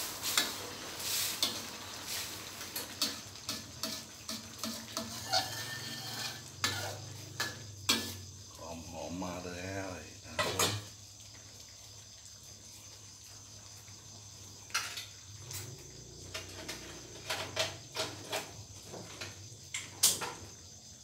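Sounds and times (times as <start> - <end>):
kitchen utensils and dishes clicking: 2.8 - 8.2, 10.4 - 10.9, 14.7 - 15.2, 16.3 - 20.4.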